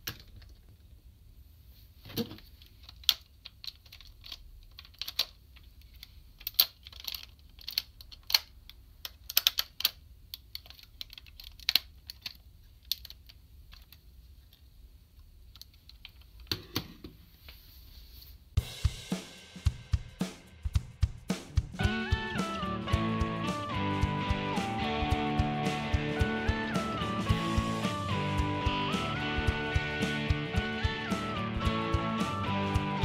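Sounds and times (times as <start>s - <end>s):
plastic toy parts clicking: 2.4s - 14.6s, 15.5s - 16.8s
background music with drums: 18.6s - 33.0s.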